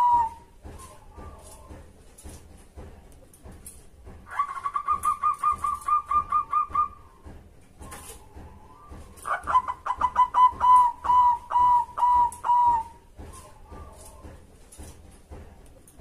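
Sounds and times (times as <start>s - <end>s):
dove cooing: 4.3s - 7.1s, 7.8s - 14.2s.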